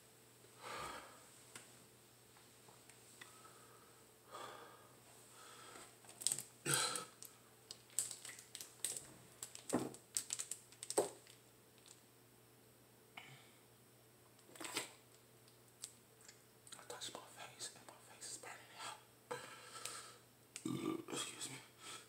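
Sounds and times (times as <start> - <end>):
plastic jug crackling: 6.1 - 11.9.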